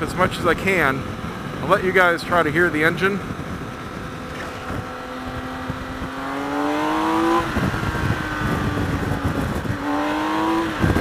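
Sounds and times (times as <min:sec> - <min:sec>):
motorcycle engine accelerating: 0:02.7 - 0:11.0.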